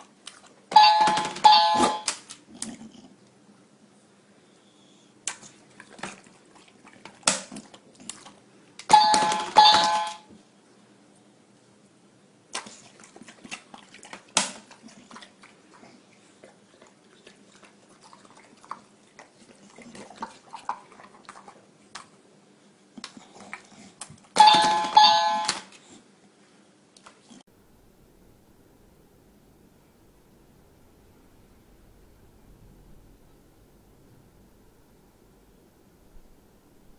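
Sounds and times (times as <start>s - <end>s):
dog eating smacks and clicks: 0.0s - 0.7s, 5.2s - 8.9s, 12.5s - 22.2s, 22.9s - 24.4s
two-note electronic bell chime: 0.8s - 2.1s, 8.9s - 10.2s, 24.4s - 25.6s.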